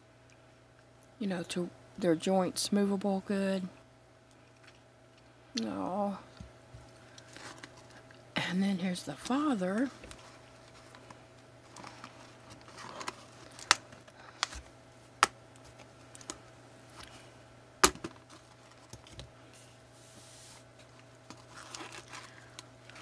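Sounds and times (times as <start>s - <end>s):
cardboard rustling: 9.2s - 14.7s, 20.0s - 23.0s.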